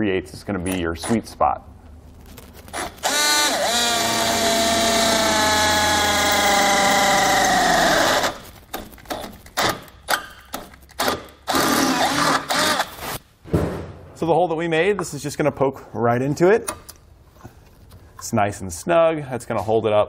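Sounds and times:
power drill boring through steel: 2.8 - 8.4, 11.5 - 12.9.

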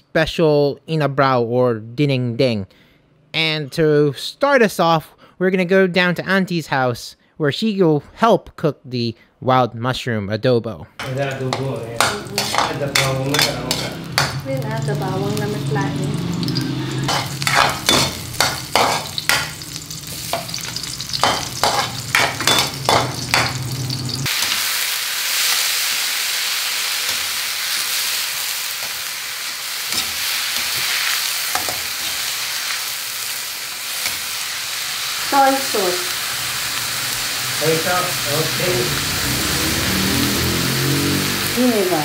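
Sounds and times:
utensil knocking against pan: 11.0 - 14.4
food sizzling in pan: 11.0 - 42.0.

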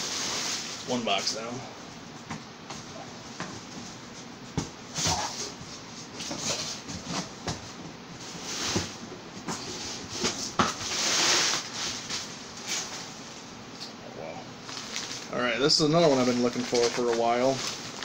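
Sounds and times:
wrapping crinkling rustles: 14.6 - 18.0.

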